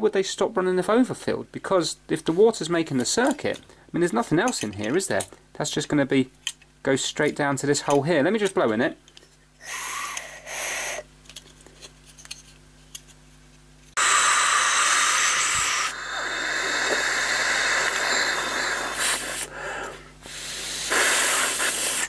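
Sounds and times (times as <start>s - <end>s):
air blown hard by mouth: 9.6s - 11.1s, 14.0s - 22.0s.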